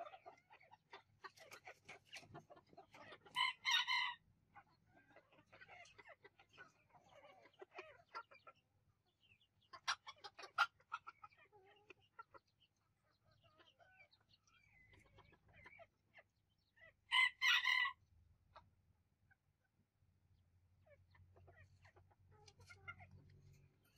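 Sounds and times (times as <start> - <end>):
chickens clucking: 0.0 - 23.9
loud two-part chicken call: 17.1 - 18.0.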